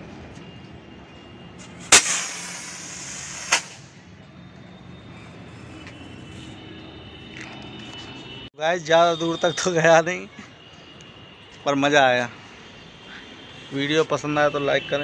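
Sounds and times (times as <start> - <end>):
firework rocket burst: 1.8 - 3.9
sharp firework crack: 1.8 - 3.9
rocket hissing in flight: 1.9 - 4.0.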